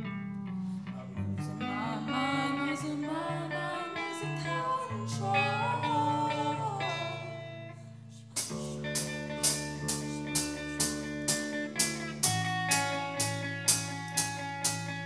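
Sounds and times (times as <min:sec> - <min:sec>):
bass guitar: 0:00.0 - 0:15.0
electric guitar chords: 0:00.0 - 0:15.0
drum kit beat: 0:08.4 - 0:15.0.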